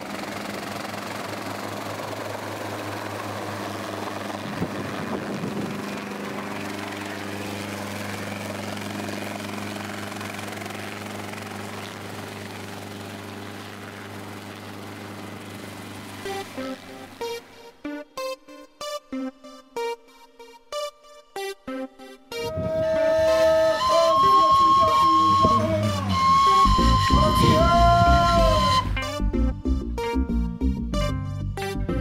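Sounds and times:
helicopter engine and rotor drone: 0:00.0 - 0:18.3, 0:22.4 - 0:29.2
electronic music: 0:22.3 - 0:32.0.

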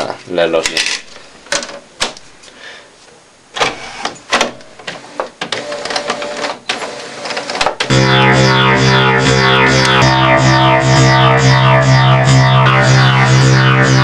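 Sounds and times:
steady scanner tone: 0:07.9 - 0:14.0.

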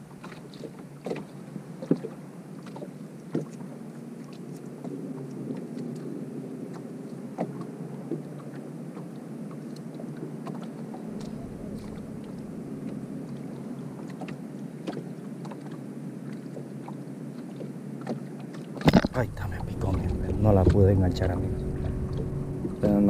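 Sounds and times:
water lapping against hull: 0:00.0 - 0:23.0
steady low noise: 0:18.9 - 0:23.0.

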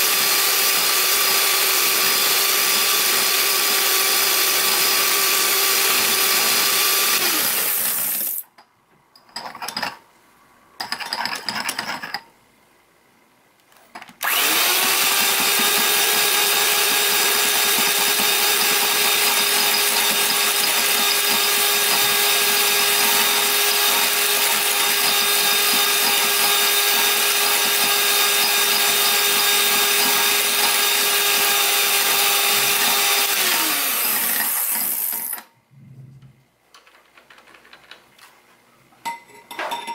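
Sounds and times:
electric hand mixer whining: 0:00.0 - 0:08.4, 0:14.2 - 0:35.4.

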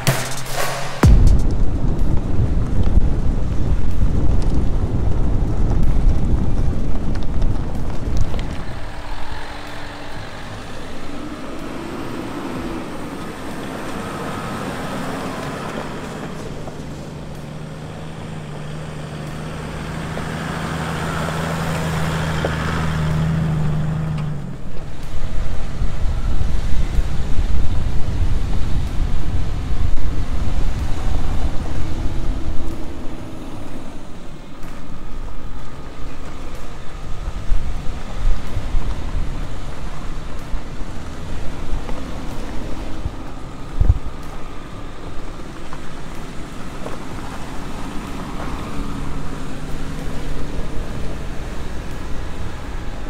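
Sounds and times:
diesel engine running: 0:00.0 - 0:53.0
vehicle rumbling on dirt track: 0:00.0 - 0:53.0
low thump: 0:00.1 - 0:06.0
wind buffeting microphone: 0:01.0 - 0:53.0.

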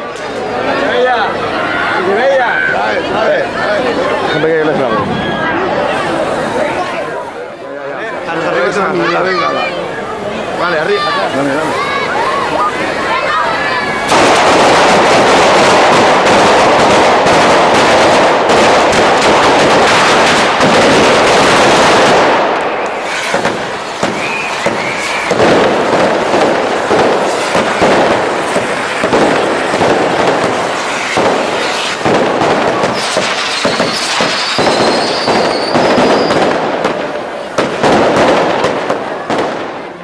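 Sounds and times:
firework fountains hissing: 0:00.0 - 0:40.0
firecrackers banging: 0:10.1 - 0:40.0.

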